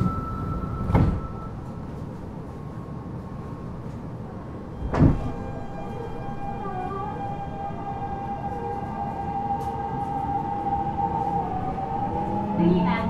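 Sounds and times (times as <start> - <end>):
train interior rumble: 0.0 - 13.0
wavering inverter tones: 4.7 - 13.0.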